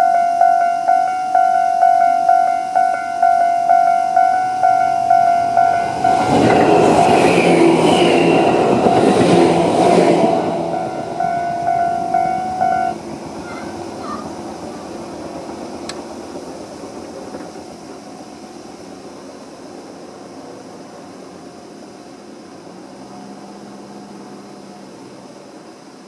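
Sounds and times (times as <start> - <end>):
crossing warning bell ringing: 0.0 - 16.1
train wheels rumbling on rails: 0.0 - 24.5.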